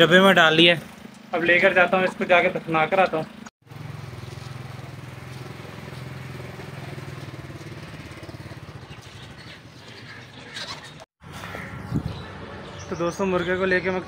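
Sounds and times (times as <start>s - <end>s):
small engine running: 0.6s - 9.5s.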